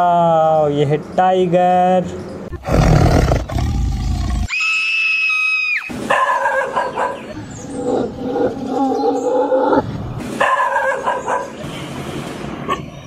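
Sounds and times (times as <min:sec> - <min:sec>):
low roar: 0:02.6 - 0:04.5, 0:07.5 - 0:10.2.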